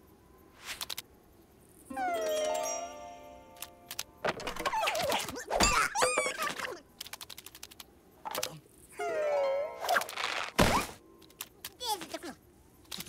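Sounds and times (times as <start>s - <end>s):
squeaky cartoon character voice: 4.6s - 6.8s.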